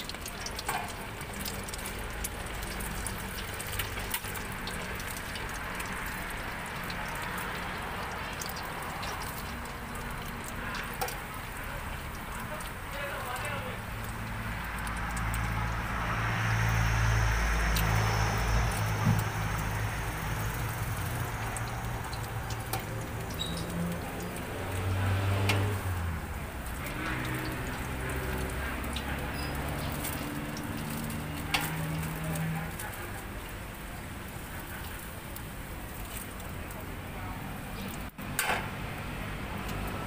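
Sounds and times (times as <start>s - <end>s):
low engine hum: 0.0s - 35.4s
oil sizzling and bubbling: 0.0s - 40.0s
metal tongs clicking on pot: 25.4s - 25.7s, 28.9s - 32.1s.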